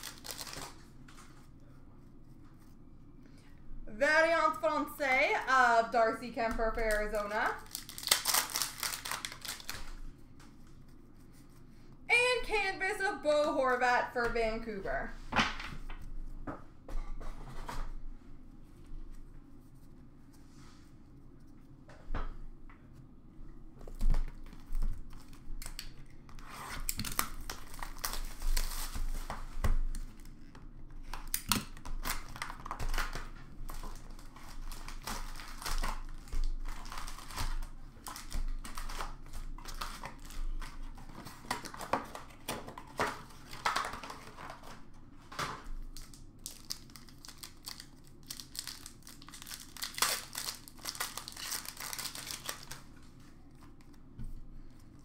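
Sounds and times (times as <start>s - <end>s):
foil packs crinkling and rustling: 0.0s - 1.4s, 6.6s - 10.8s, 26.8s - 30.4s, 31.0s - 44.9s, 45.8s - 53.7s.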